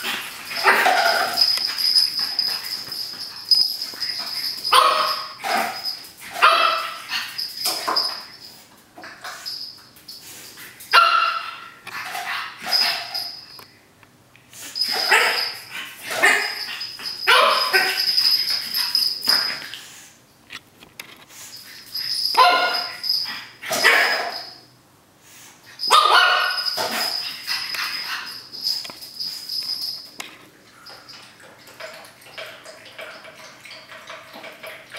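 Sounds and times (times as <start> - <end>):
puppy play-barking and yipping: 0.0 - 8.3, 10.9 - 13.4, 14.7 - 19.7, 21.8 - 24.6, 25.8 - 28.9.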